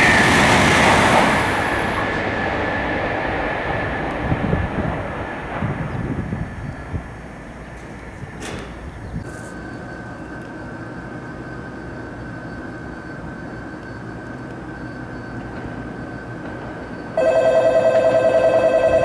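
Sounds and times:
train approaching rumble: 0.0s - 19.0s
two-tone electronic platform bell: 17.2s - 19.0s.

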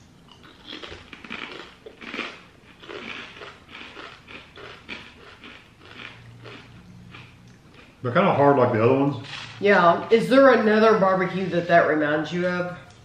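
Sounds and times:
potato chips being chewed: 0.1s - 8.1s.

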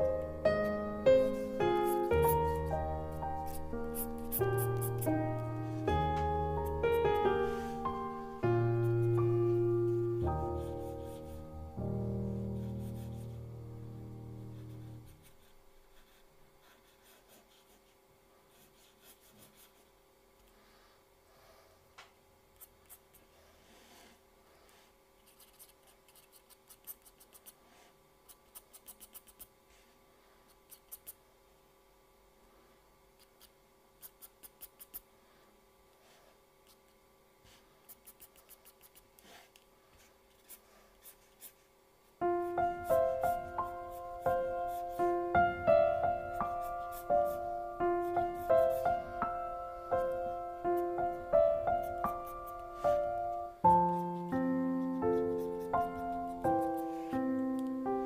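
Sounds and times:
piano music: 0.0s - 15.4s, 42.2s - 58.0s
faint steady hum: 0.0s - 58.0s
pencil scratching on paper: 0.6s - 6.0s, 8.6s - 11.7s, 12.3s - 13.6s, 14.4s - 20.0s, 22.6s - 29.9s, 30.5s - 31.2s, 33.2s - 35.1s, 37.4s - 41.7s, 42.4s - 45.2s, 46.2s - 49.0s, 49.9s - 57.3s.

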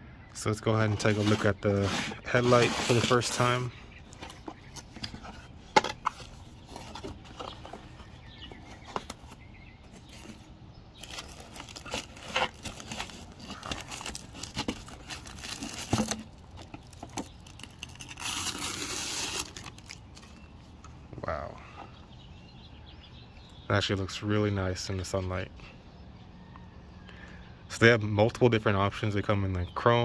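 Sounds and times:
cardboard and foam handled: 0.7s - 20.5s
plastic bag crinkling: 11.0s - 20.4s.

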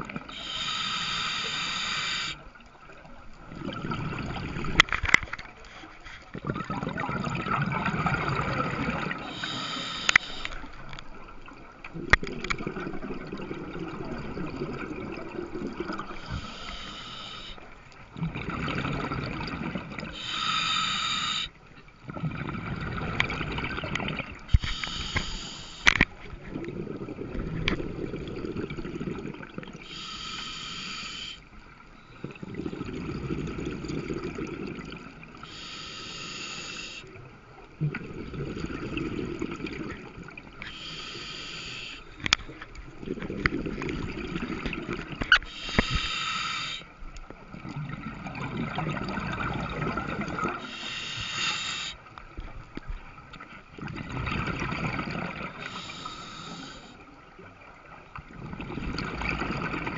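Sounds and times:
regulator hissing inhale: 0.2s - 2.5s, 9.2s - 10.7s, 16.0s - 17.8s, 20.1s - 21.6s, 24.5s - 26.0s, 29.8s - 32.4s, 35.4s - 37.1s, 40.6s - 42.6s, 45.3s - 46.9s, 50.6s - 52.1s, 55.6s - 57.0s
exhaled bubbles burbling: 3.4s - 5.2s, 6.3s - 17.5s, 18.1s - 20.4s, 22.0s - 24.8s, 26.3s - 29.8s, 32.2s - 35.4s, 37.7s - 40.6s, 42.2s - 46.0s, 47.4s - 51.4s, 53.7s - 56.5s, 57.3s - 59.9s.

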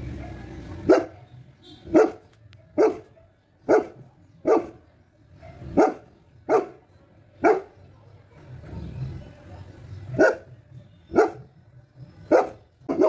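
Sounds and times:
dog barking: 0.0s - 6.8s, 7.4s - 7.8s, 10.1s - 11.5s, 12.3s - 13.0s.

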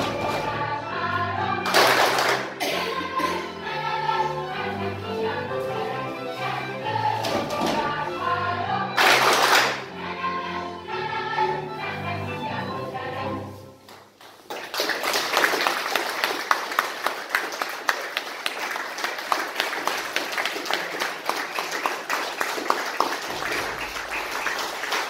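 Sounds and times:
audience applauding: 1.7s - 2.6s, 9.0s - 9.8s, 14.2s - 25.0s.

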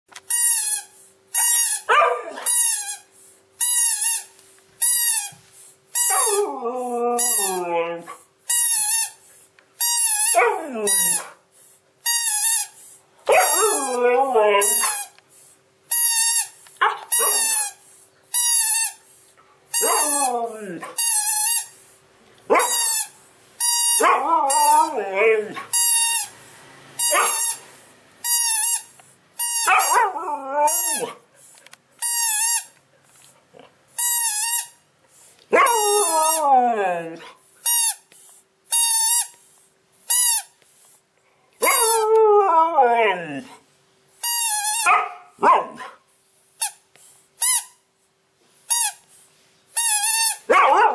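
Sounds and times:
squeaky toy ball squeaks: 0.3s - 9.2s, 9.8s - 11.3s, 12.0s - 15.2s, 15.9s - 19.0s, 19.7s - 21.8s, 22.5s - 26.4s, 27.0s - 31.2s, 32.0s - 32.8s, 34.0s - 34.8s, 35.5s - 38.1s, 38.7s - 39.4s, 40.1s - 40.6s, 44.2s - 45.1s, 46.6s - 46.8s, 47.4s - 47.8s, 48.7s - 49.1s, 49.8s - 50.7s
dog howling: 6.1s - 8.2s, 10.3s - 11.3s, 13.3s - 15.0s, 19.8s - 21.0s, 24.0s - 25.7s, 29.6s - 31.2s, 35.5s - 37.3s, 41.6s - 43.6s.

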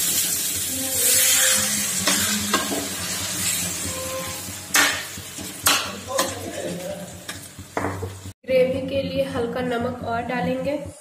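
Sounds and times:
water sizzling in hot pan: 0.0s - 8.4s
spoon knocking against pan: 7.3s - 8.2s.

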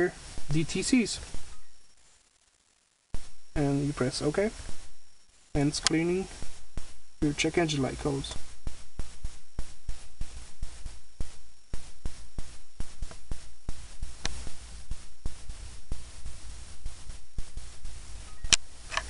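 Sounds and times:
low steady hum: 0.0s - 19.0s
irregular sharp clicks: 14.2s - 14.4s.

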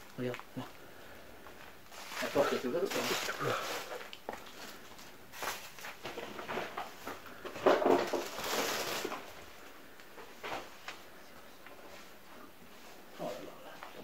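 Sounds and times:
rustling: 0.0s - 13.5s
footsteps: 1.4s - 9.3s.

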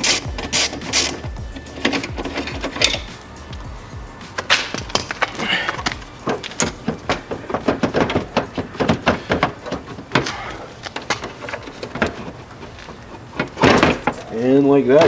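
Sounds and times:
plastic headlight clicking and knocking: 4.4s - 14.3s.

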